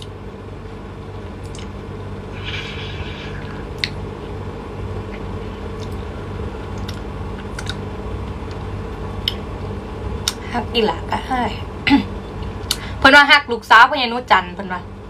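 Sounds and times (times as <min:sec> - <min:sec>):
low hum: 0:00.0 - 0:15.0
mouth clicks and smacks: 0:01.4 - 0:01.7, 0:03.2 - 0:04.0, 0:06.8 - 0:07.8, 0:09.2 - 0:09.4
person chewing food: 0:05.1 - 0:09.4.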